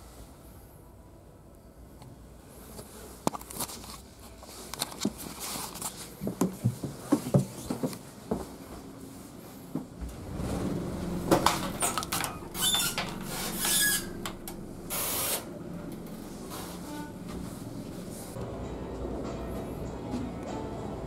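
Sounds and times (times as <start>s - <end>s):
footsteps: 3.7s - 10.6s, 16.0s - 18.4s
low steady hum: 9.0s - 21.0s.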